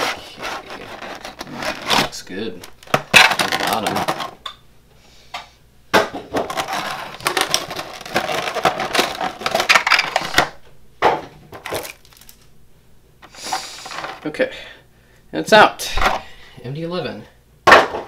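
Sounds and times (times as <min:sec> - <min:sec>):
plastic tray crinkling: 0:00.4 - 0:04.4, 0:06.3 - 0:10.6, 0:11.5 - 0:12.5.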